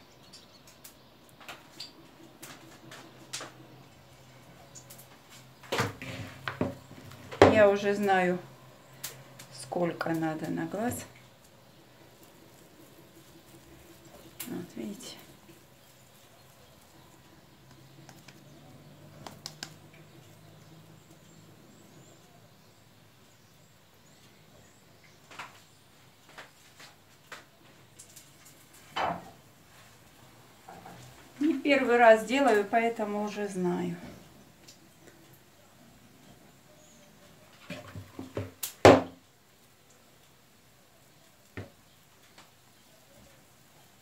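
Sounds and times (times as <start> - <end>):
sharp clicks and ticks: 19.1 - 20.1.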